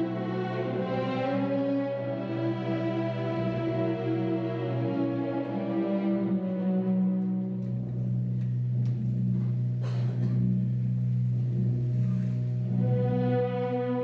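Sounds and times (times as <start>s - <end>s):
sustained low orchestral chord: 0.0s - 14.0s.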